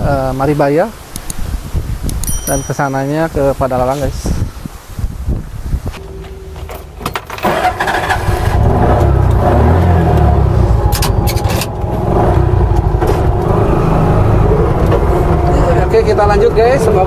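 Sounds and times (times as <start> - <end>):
three-wheeler engine running: 6.6 - 17.0.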